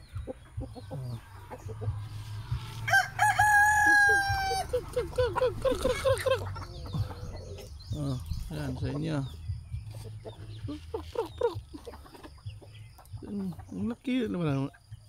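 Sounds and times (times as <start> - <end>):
chickens clucking: 0.0 - 15.0
rooster crowing: 2.6 - 4.8.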